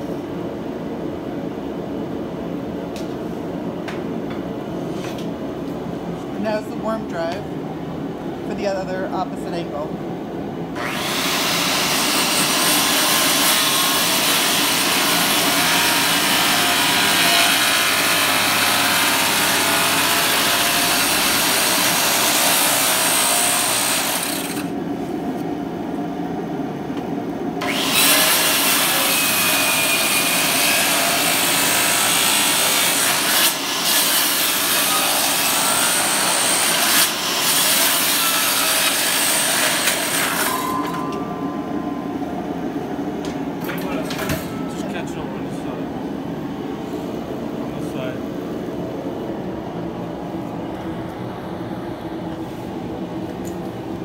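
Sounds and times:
circular saw cutting timber: 0:10.8 - 0:24.7, 0:27.6 - 0:41.1.

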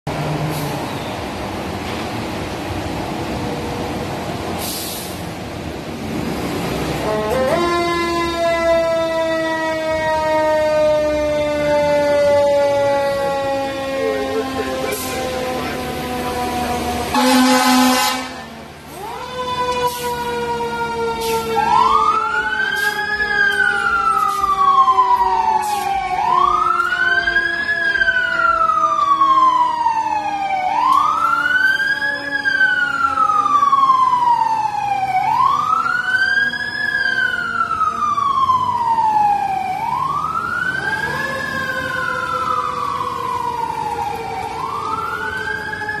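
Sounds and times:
fire engine siren wailing: 0:00.1 - 0:46.0
steady siren tone: 0:07.0 - 0:46.0.

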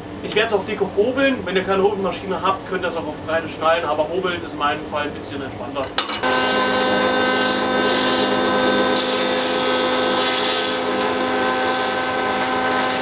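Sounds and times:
thickness planer humming and hissing: 0:06.2 - 0:13.0.

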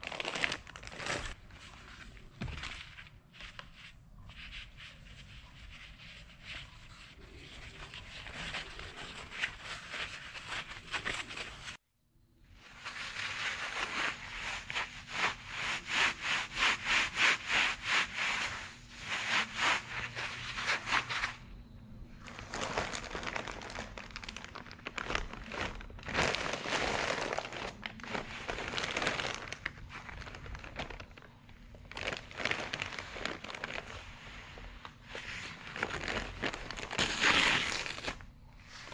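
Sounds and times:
plastic bag crinkling: 0:00.0 - 0:03.8, 0:22.1 - 0:38.9
knit gloves rubbing and rustling: 0:00.0 - 0:11.8, 0:12.6 - 0:21.5.

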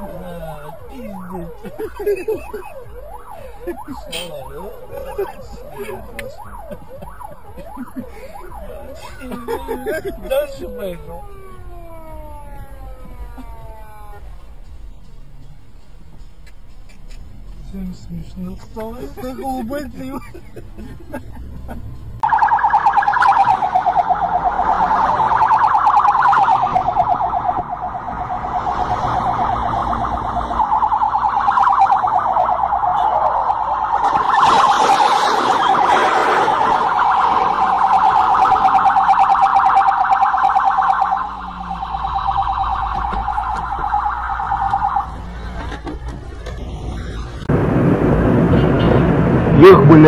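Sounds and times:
police siren warbling: 0:00.0 - 0:14.5, 0:22.2 - 0:45.4
rush of noise: 0:46.5 - 0:50.0.

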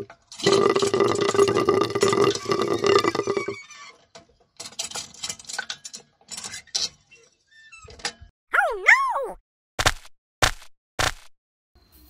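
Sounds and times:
hand pump gurgling and sputtering: 0:00.0 - 0:03.6.

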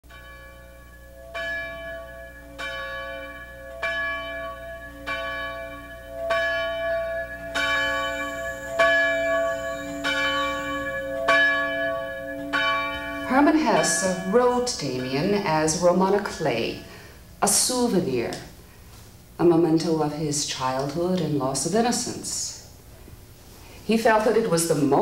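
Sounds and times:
bell tolling: 0:00.1 - 0:16.9.

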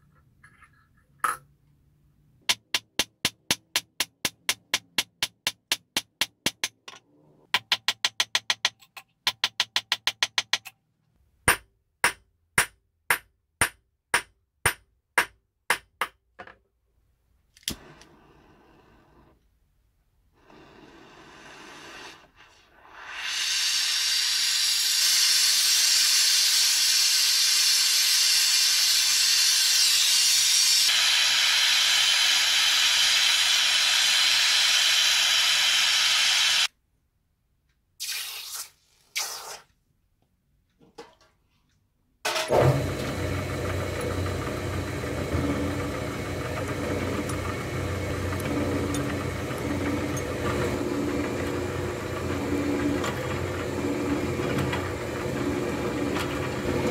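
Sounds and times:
gas torch flame hissing: 0:17.7 - 0:19.4, 0:20.3 - 0:36.7.

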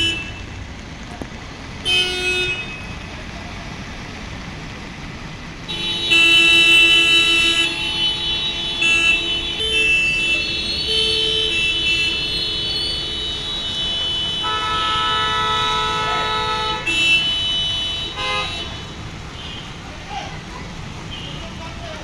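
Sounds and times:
vehicle horns blasting: 0:00.0 - 0:00.6, 0:01.8 - 0:03.2, 0:05.7 - 0:19.8.

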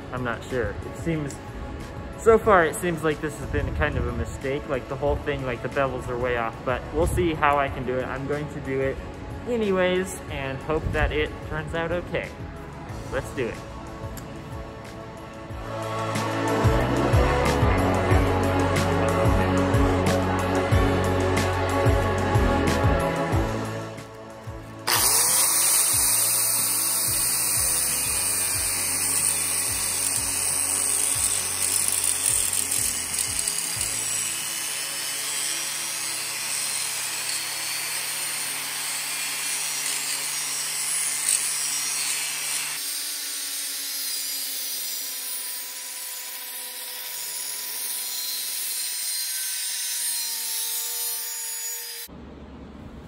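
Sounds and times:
motor whine: 0:13.8 - 0:42.8
angle grinder grinding steel: 0:22.7 - 0:52.1.

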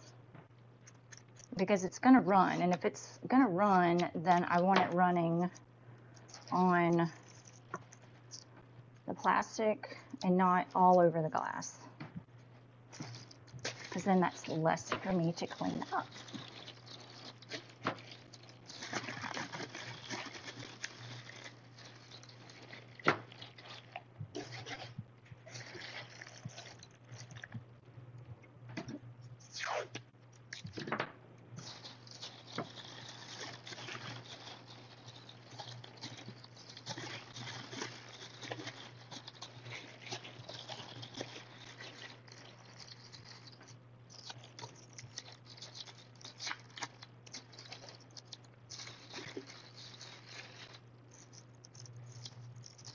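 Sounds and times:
steady low hum: 0:00.0 - 0:52.9
plastic bag crinkling: 0:12.9 - 0:27.6, 0:31.6 - 0:52.9.

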